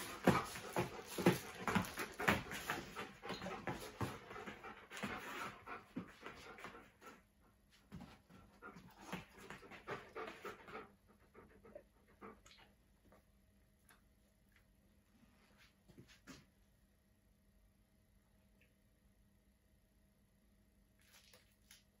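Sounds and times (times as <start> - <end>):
dog panting: 0.0 - 13.2.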